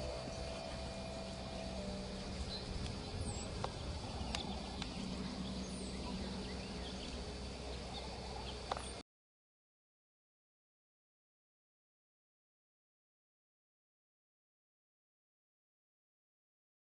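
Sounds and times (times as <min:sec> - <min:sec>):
low hum: 0:00.0 - 0:09.0
small birds chirping: 0:00.0 - 0:09.0.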